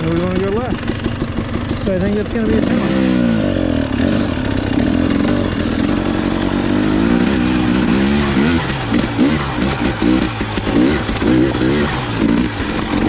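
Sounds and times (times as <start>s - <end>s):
motorbike engine revving: 0.0s - 13.0s.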